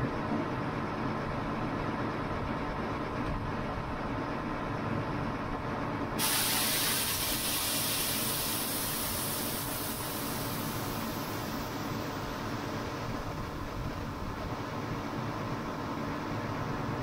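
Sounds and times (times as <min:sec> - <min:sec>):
liquid hissing under pressure: 0:06.2 - 0:12.2.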